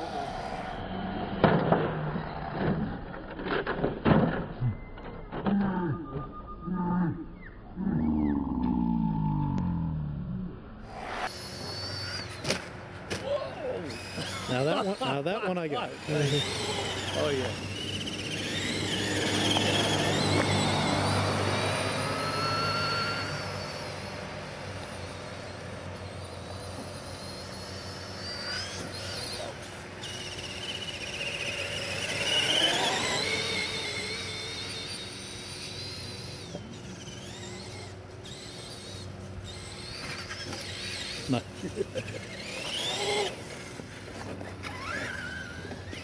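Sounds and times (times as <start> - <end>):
electric motor whining: 10.9 - 46.0.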